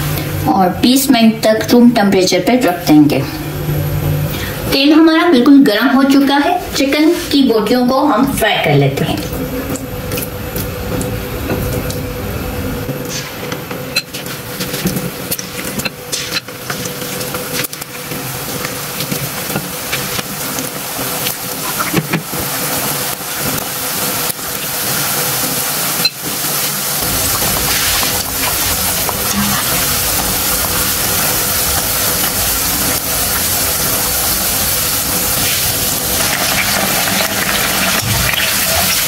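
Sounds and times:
chicken sizzling in hot oil: 13.9 - 39.0.

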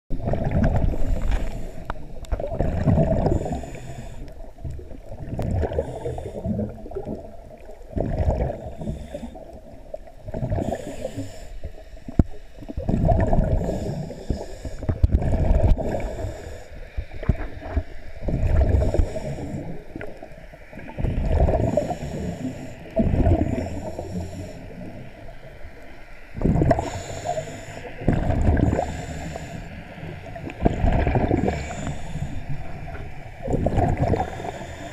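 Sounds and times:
bubbling: 0.1 - 16.6, 17.2 - 25.0, 26.4 - 29.5, 30.2 - 34.9
scuba regulator breathing: 0.7 - 4.6, 5.6 - 7.1, 8.4 - 9.8, 10.4 - 12.7, 13.3 - 17.6, 18.4 - 20.3, 21.2 - 25.3, 26.6 - 30.3, 31.0 - 33.1, 33.7 - 34.9.

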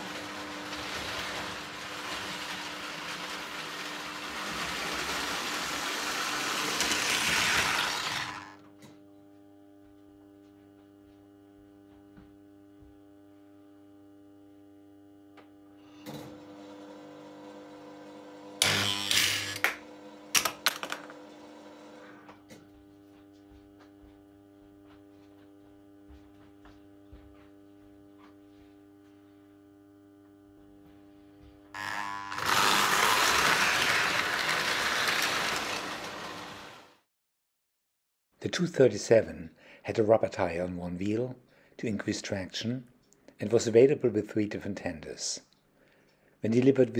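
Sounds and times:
toy train running on metal track: 0.0 - 8.6, 32.4 - 36.6.

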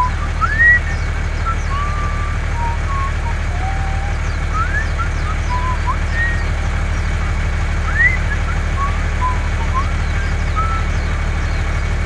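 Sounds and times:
truck engine rumbling: 0.0 - 12.0.

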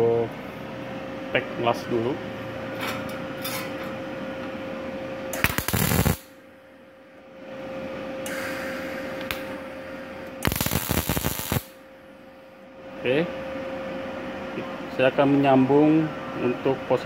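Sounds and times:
steady hum: 0.0 - 17.0
welding arc crackling: 5.3 - 6.4, 10.4 - 11.8.

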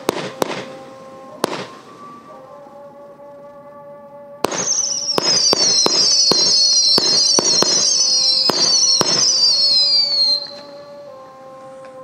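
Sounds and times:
firework bangs: 0.0 - 2.3, 4.4 - 10.9
firework whistles: 0.0 - 2.5, 4.4 - 11.5.

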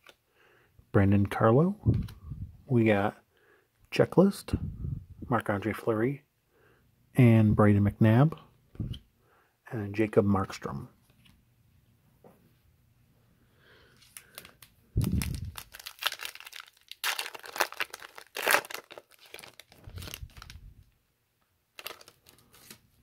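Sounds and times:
foil wrapper tearing and crinkling: 14.1 - 20.6, 21.8 - 22.8.

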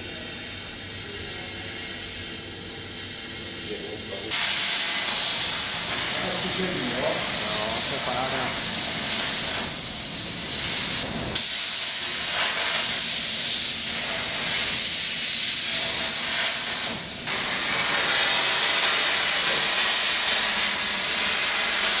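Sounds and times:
plasma torch hissing: 4.3 - 22.0.

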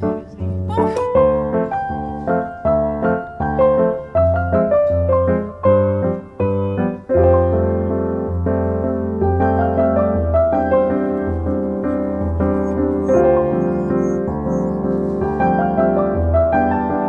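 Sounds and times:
piano music: 0.0 - 17.0.

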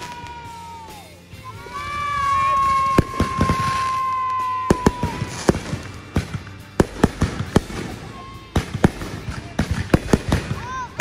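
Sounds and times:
firework bangs and pops: 0.0 - 0.6, 1.9 - 11.0
firework whistle: 2.0 - 6.0.

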